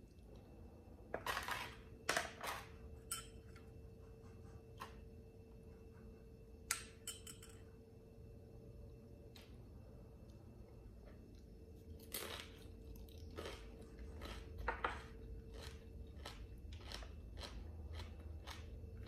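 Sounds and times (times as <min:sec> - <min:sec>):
chopsticks and spoon clinking on dishes: 0:03.0 - 0:03.7, 0:06.7 - 0:07.7.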